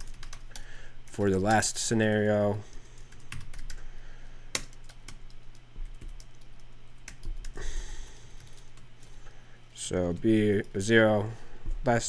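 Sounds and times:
typing on a keyboard: 0.0 - 0.7, 2.9 - 3.8, 4.5 - 7.6.

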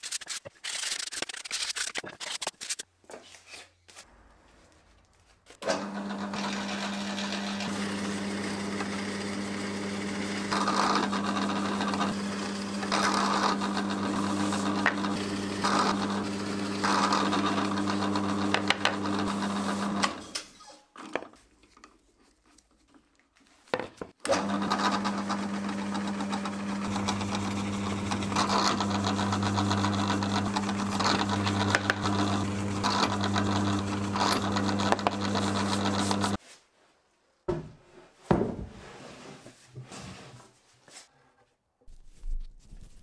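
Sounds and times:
drill press motor humming: 5.6 - 20.2, 24.3 - 36.4
drill press drilling into wood: 5.6 - 20.3, 24.2 - 36.4.

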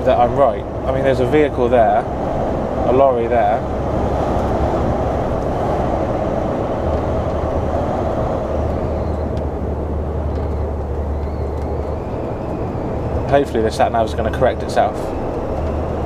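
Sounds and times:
lorry engine drone: 0.0 - 16.0
road noise: 0.0 - 16.0.

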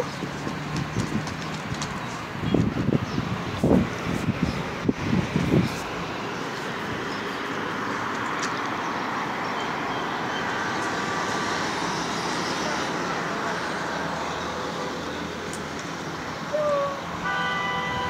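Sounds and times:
road traffic noise: 0.0 - 18.0.

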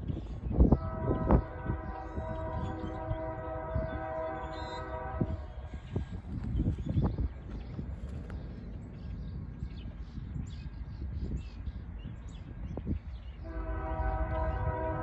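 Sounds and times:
locomotive air horn chord: 0.7 - 5.8, 13.4 - 15.0.

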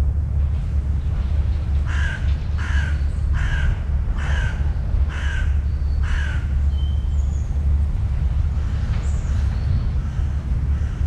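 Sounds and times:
steady low rumble: 0.0 - 11.0
crow cawing: 1.9 - 6.5.

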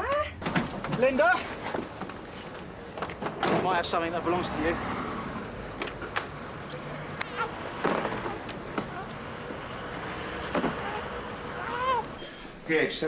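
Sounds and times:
people moving about in vehicle: 0.0 - 13.0
vehicle door clunking open: 10.3 - 11.3.

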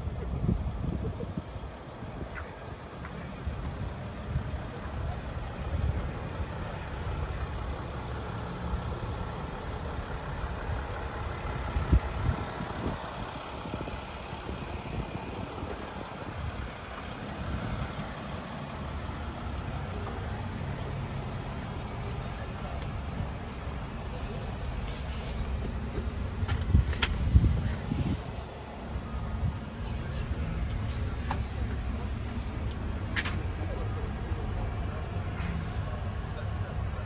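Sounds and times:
van engine idling: 0.0 - 37.0.

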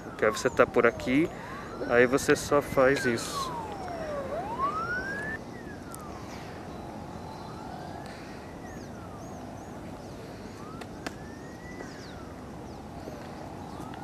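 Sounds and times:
background noise: 0.0 - 14.0
siren wailing: 0.0 - 14.0
high chirps: 0.4 - 8.1.

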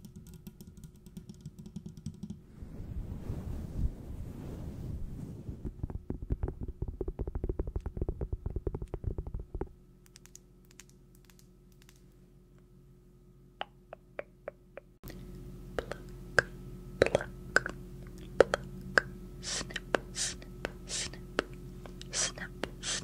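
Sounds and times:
rapid tapping: 5.8 - 10.4.

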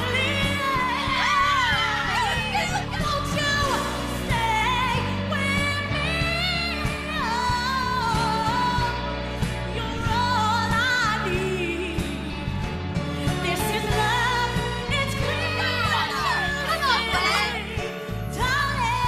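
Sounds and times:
woman singing with vibrato: 0.0 - 9.0, 13.4 - 19.0.

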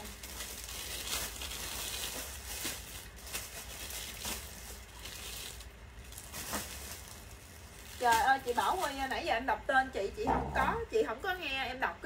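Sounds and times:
clothing rustling and crinkling: 0.0 - 9.5.

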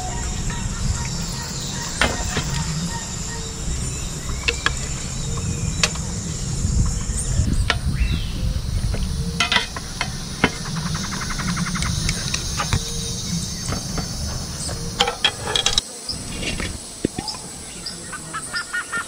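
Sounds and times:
high-pitched insect drone: 0.0 - 19.0.

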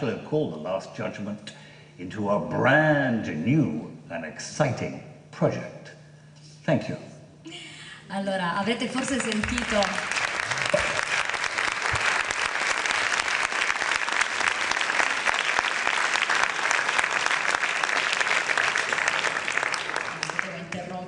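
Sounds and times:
audience applauding: 8.9 - 21.0.

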